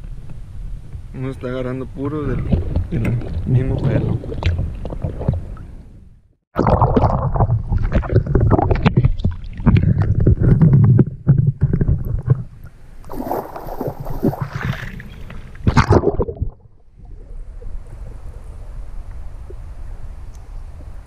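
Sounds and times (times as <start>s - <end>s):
gurgling water: 2.4s - 5.8s, 6.6s - 21.0s
water sloshing and splashing: 2.4s - 5.8s, 6.6s - 18.6s.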